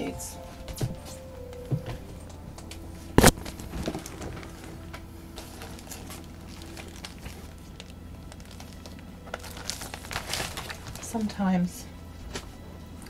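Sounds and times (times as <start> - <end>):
paper package crinkling: 3.2 - 11.4.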